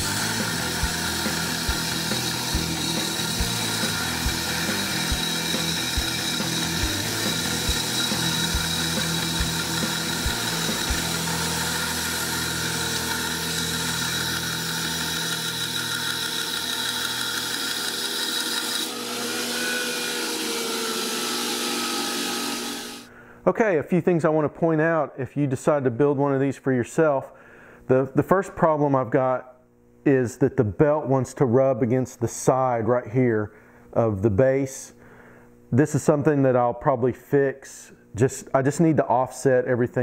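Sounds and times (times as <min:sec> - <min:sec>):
belt grinder grinding steel: 0:00.0 - 0:23.1
motor whine: 0:00.0 - 0:23.1.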